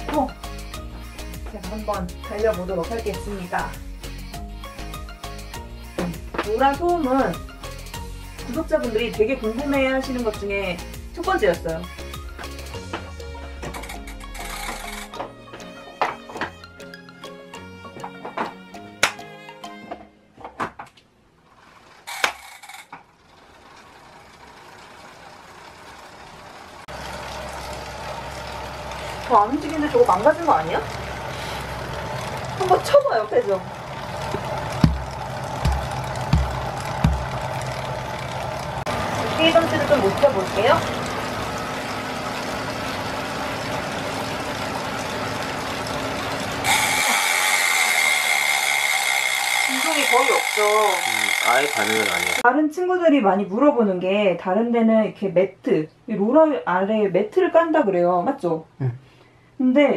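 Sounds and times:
bike trainer whirring: 0:12.2 - 0:15.3, 0:21.5 - 0:52.4
low hum: 0:23.7 - 0:47.0
knock: 0:35.6 - 0:37.2.

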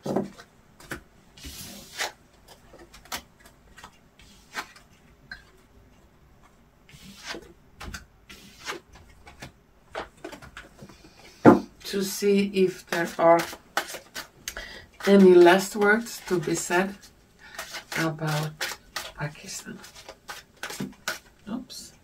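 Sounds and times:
cards being shuffled: 0:12.8 - 0:14.4, 0:15.0 - 0:21.3.

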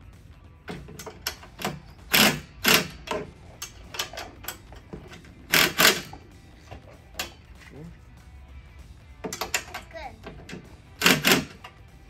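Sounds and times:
ratchet wrench clicking: 0:00.7 - 0:07.4, 0:09.2 - 0:12.0.

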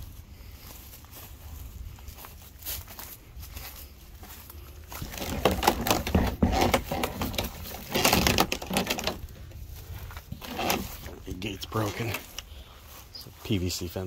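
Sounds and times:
plastic gate clattering and scraping: 0:05.0 - 0:09.4, 0:10.2 - 0:12.4.

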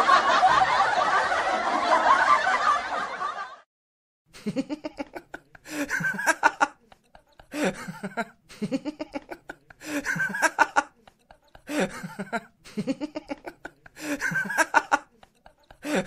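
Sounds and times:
person laughing: 0:04.4 - 0:16.0.

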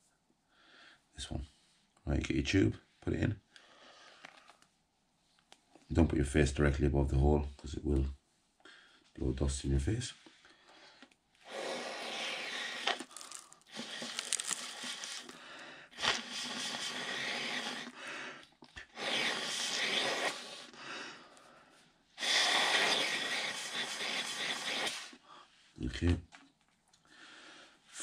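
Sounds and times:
person blowing hard through tube: 0:11.4 - 0:18.1, 0:18.8 - 0:20.8, 0:22.2 - 0:25.2.

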